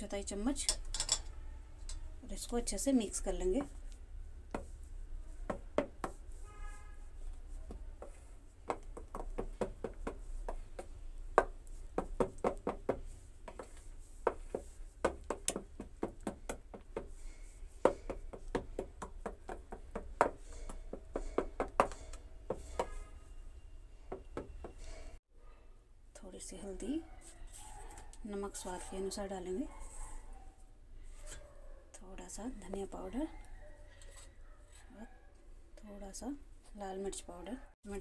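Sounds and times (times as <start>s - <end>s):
metal spoon clinking in steel bowl: 0.6s - 2.1s.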